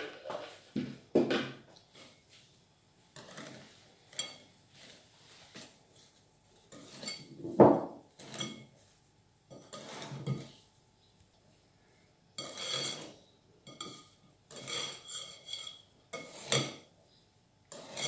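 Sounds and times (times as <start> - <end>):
whisk scraping against a bowl: 3.2 - 7.3, 8.1 - 8.9, 9.5 - 10.6, 12.4 - 16.9, 17.7 - 18.0.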